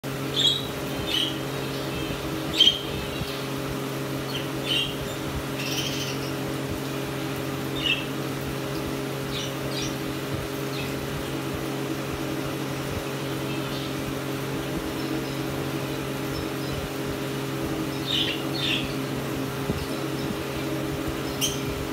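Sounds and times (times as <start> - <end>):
low mechanical hum: 0.0 - 21.9
lovebirds chirping: 0.2 - 6.4, 14.8 - 19.1, 19.7 - 21.9.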